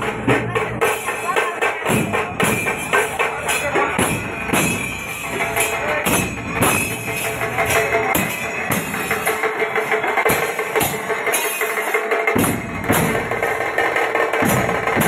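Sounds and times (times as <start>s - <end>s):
bass drums beaten: 0.0s - 9.3s, 12.4s - 15.0s
bright metallic clashing: 1.9s - 13.6s.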